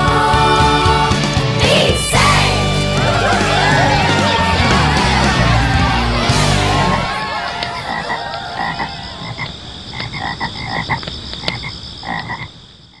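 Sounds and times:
background music: 0.0 - 7.3
steady high drone: 0.0 - 7.3
animals croaking: 1.7 - 13.0.

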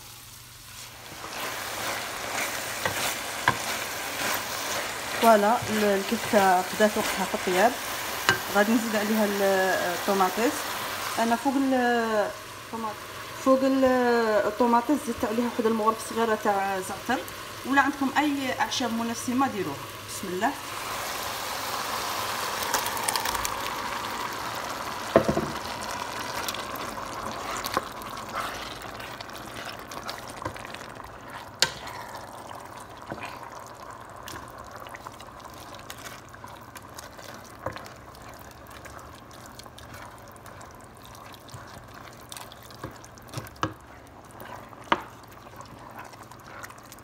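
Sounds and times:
sauce hissing and bubbling in pot: 0.0 - 47.0
wooden spoon knocking pot: 25.1 - 25.6.

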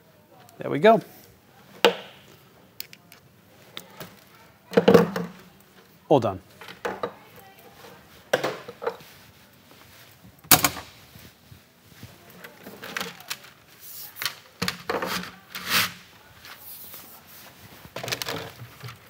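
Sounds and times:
tools knocking and clattering: 6.6 - 7.2.

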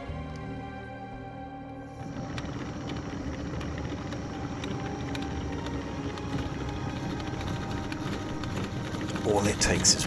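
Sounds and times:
background music: 0.0 - 10.0
wood lathe running: 1.8 - 10.0.

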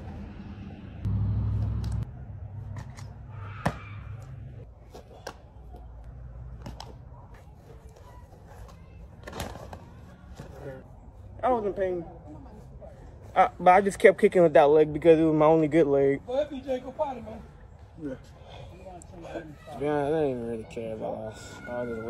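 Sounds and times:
loud low rumble: 0.9 - 2.4.

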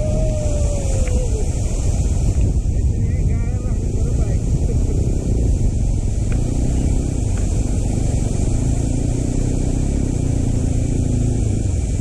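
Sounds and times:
wind and road noise: 0.0 - 12.0
motorcycle engine running: 4.4 - 12.0.

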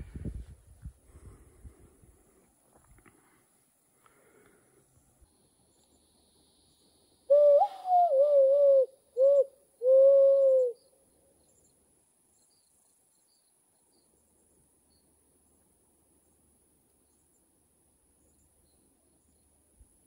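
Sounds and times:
person hand whistling: 7.3 - 10.7.

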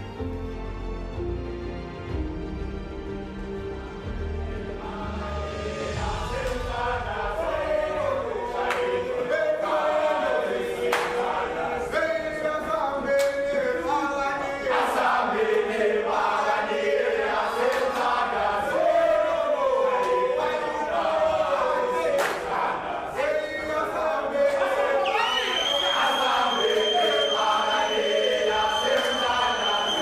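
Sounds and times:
men singing a chant in unison: 4.8 - 30.0
sharp claps: 8.6 - 8.9, 10.8 - 11.3, 13.2 - 13.4, 17.6 - 18.2, 22.1 - 22.6.

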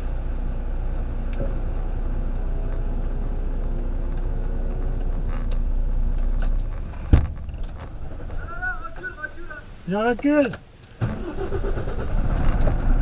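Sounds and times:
diesel engine idling: 0.0 - 13.0
sharp thump: 6.9 - 8.4.

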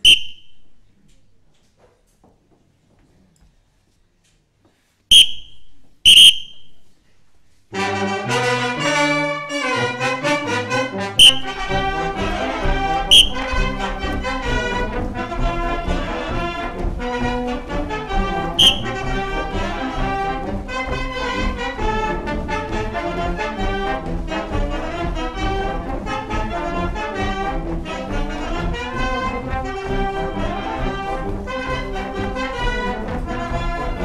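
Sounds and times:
brass band playing march: 7.7 - 34.0.

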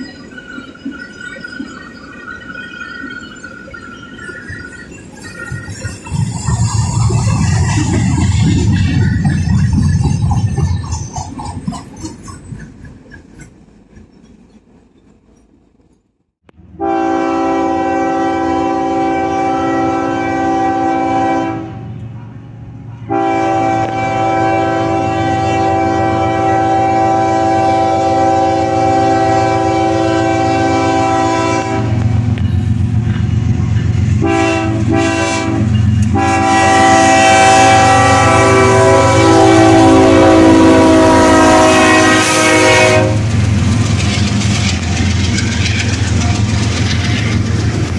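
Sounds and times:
freight cars clattering on rails: 0.0 - 16.0, 42.5 - 47.9
diesel locomotive rumbling: 0.0 - 47.9
locomotive air horn blasts: 16.7 - 22.0, 23.1 - 32.2, 34.2 - 43.3.

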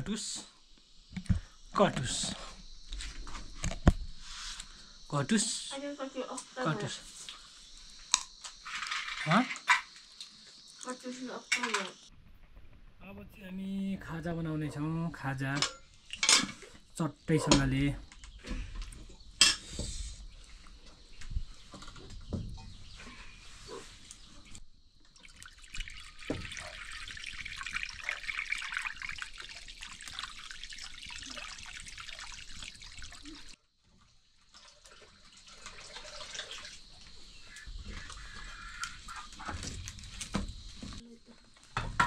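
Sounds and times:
water pouring and splashing: 15.4 - 17.8, 24.4 - 41.0
utensils knocking and clinking: 15.6 - 16.6.

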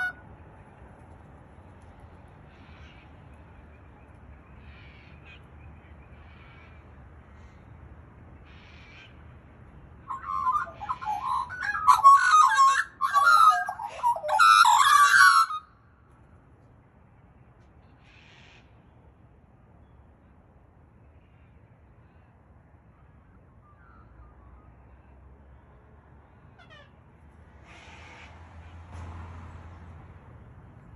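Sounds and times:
magpie warbling song: 10.1 - 15.7.

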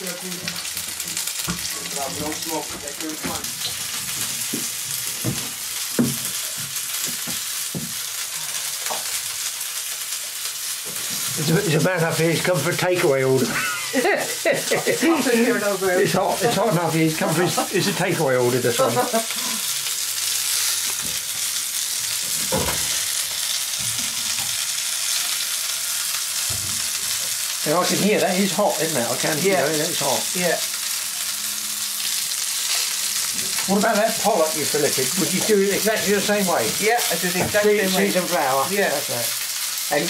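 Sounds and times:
fish sizzling in a frying pan: 0.0 - 40.0.

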